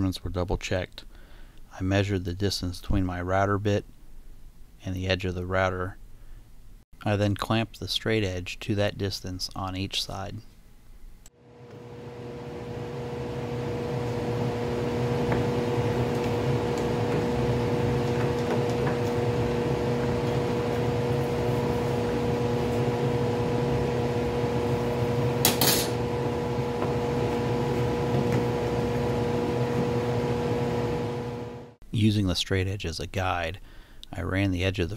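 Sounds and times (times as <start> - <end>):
steady machine hum: 11.4 - 31.8.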